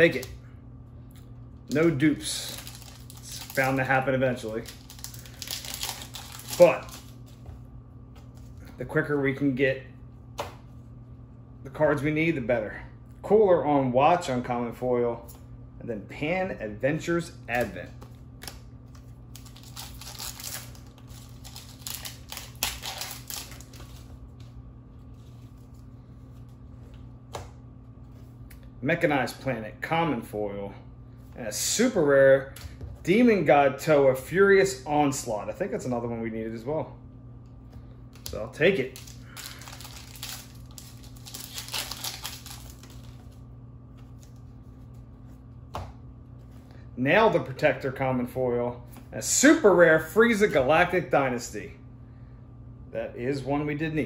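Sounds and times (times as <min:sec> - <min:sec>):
low steady hum: 0:00.0 - 0:54.0
handling of cards: 0:01.6 - 0:08.8, 0:17.5 - 0:28.6, 0:38.1 - 0:46.7
foil wrapper crinkling and tearing: 0:01.7 - 0:07.3, 0:18.4 - 0:24.1, 0:38.2 - 0:43.4.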